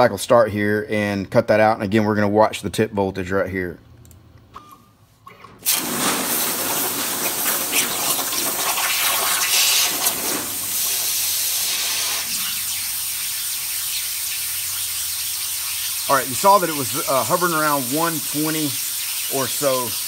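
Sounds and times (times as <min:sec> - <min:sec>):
plasma cutter arc hissing: 0:05.6 - 0:20.0.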